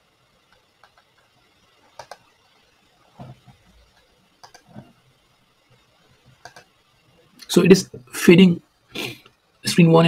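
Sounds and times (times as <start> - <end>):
computer mouse clicks: 0.5 - 1.3, 1.9 - 2.3, 3.9 - 4.9, 6.3 - 6.7.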